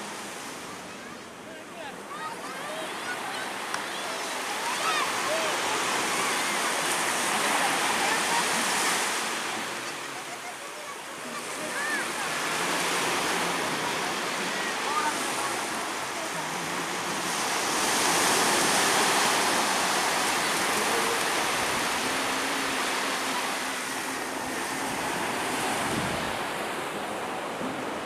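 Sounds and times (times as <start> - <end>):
waves washing onto beach: 0.0 - 28.0.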